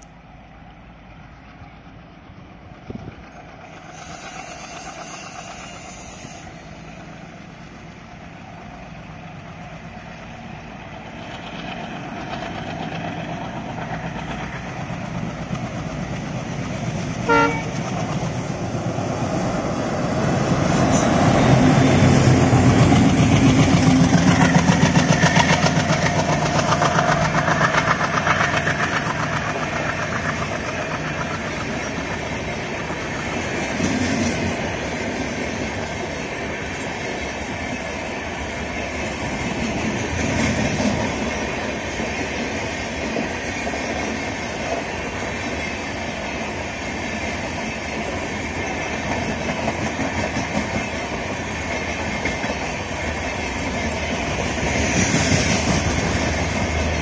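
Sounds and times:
diesel locomotive engines: 0.0s - 57.0s
train horn blast: 4.0s - 6.6s, 17.2s - 17.8s
train wheels clattering over rail joints: 20.5s - 38.0s, 38.6s - 57.0s.

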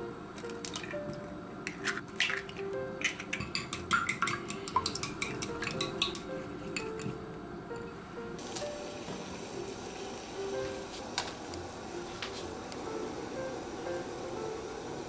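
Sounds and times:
soft background music: 0.0s - 15.0s
utensils clinking on dishes: 0.4s - 7.2s.

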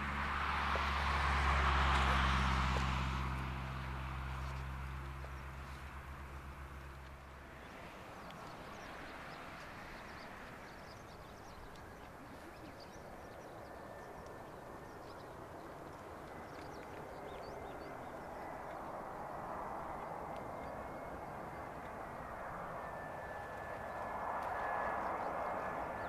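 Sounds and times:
distant jet engines rushing: 0.0s - 26.0s
small birds chirping: 6.8s - 22.2s
faint high whine: 17.6s - 26.0s.

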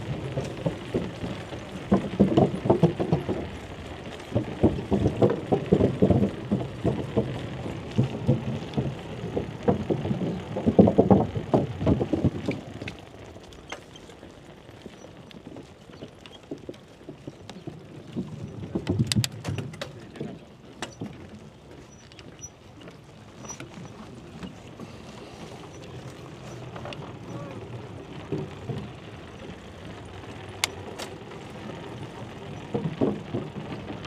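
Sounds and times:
wind buffeting microphone: 0.0s - 12.9s
light clicks and rattles: 0.1s - 34.0s.

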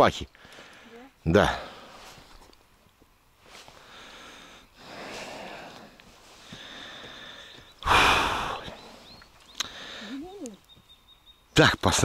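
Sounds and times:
person breathing: 0.4s - 2.3s, 3.6s - 10.4s
sharp exhale or snort: 6.6s - 8.9s.

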